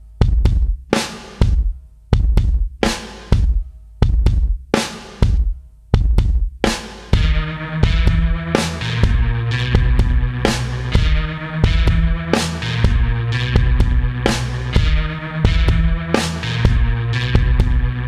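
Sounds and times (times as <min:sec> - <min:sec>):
drum kit beat: 0:00.0 - 0:18.0
bass and sustained instruments: 0:06.8 - 0:18.0.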